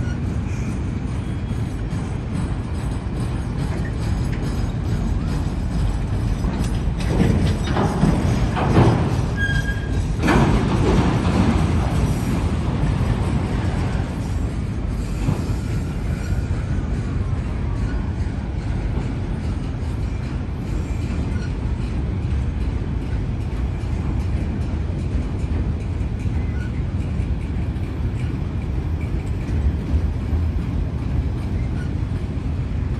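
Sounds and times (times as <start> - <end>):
wheel squeal: 0.0 - 1.7, 7.4 - 10.5, 14.9 - 16.7, 20.7 - 21.6, 26.3 - 27.0, 31.3 - 32.3
train wheels rumbling on rail: 0.0 - 32.9.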